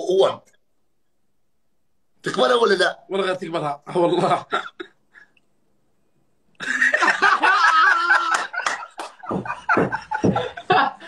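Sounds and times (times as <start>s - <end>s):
men laughing: 4.0s - 5.4s, 6.6s - 11.0s.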